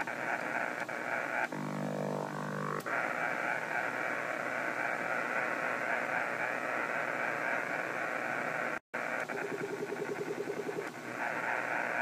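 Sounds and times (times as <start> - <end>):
radio static: 2.5 - 12.0.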